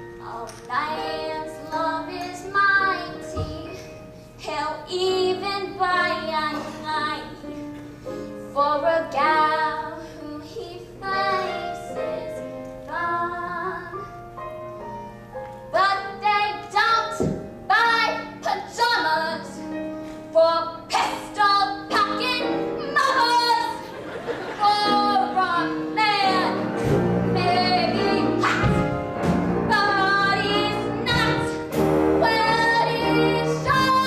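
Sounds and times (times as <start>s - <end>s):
musical accompaniment: 0.0s - 34.0s
woman singing a show tune: 20.3s - 23.8s, 29.7s - 34.0s.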